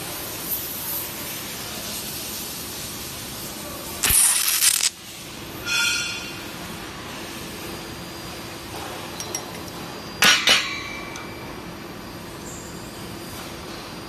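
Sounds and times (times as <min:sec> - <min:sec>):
stud welding gun crack: 0:04.0 - 0:05.0.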